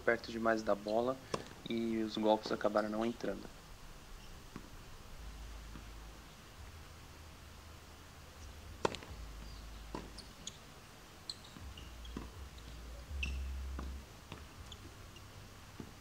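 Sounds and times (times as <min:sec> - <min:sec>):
racket hitting tennis ball: 0:01.3 - 0:01.7, 0:08.8 - 0:09.2, 0:09.9 - 0:10.2, 0:13.8 - 0:14.5
tennis ball bouncing: 0:01.3 - 0:01.8, 0:04.5 - 0:04.7, 0:08.8 - 0:10.6, 0:11.4 - 0:14.9, 0:15.8 - 0:16.0.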